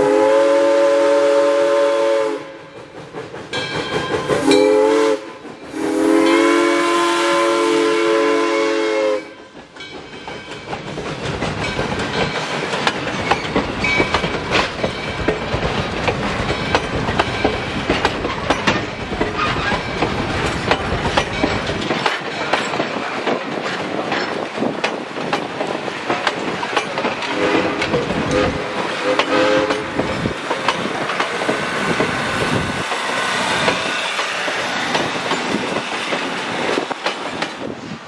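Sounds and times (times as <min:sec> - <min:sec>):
steam locomotive chime whistle: 0:00.0 - 0:09.9, 0:27.3 - 0:30.1
train wheels clicking over rail joints: 0:02.0 - 0:06.6, 0:09.5 - 0:38.0.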